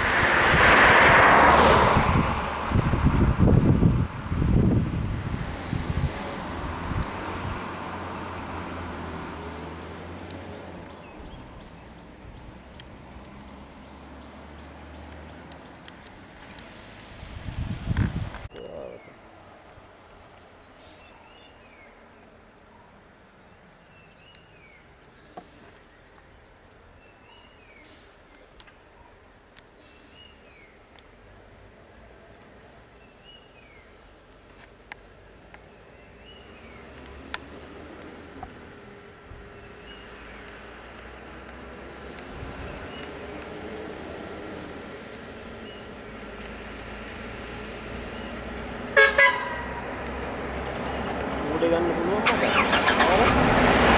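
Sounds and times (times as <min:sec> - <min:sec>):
bus engine rumbling: 0:36.0 - 0:53.9.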